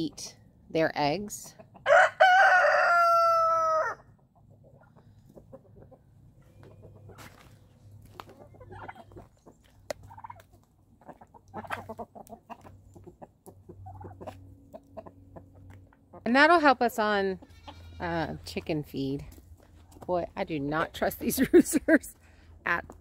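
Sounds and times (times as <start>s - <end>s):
chickens clucking: 1.0s - 17.8s.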